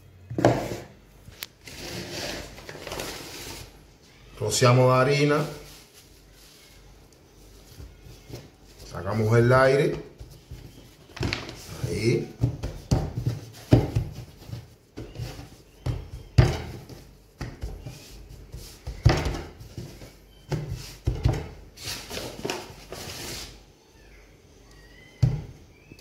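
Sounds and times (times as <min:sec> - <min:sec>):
hands thumping bread dough: 0:09.4 - 0:21.7.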